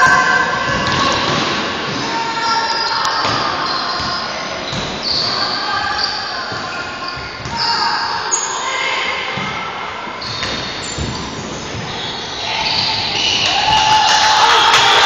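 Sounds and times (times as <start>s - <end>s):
spectators' voices: 11.0s - 15.0s.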